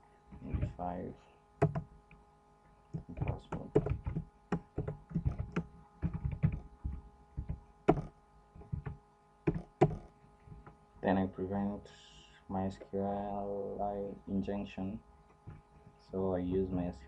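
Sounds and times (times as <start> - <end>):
keyboard typing: 1.6 - 1.9, 2.9 - 10.7.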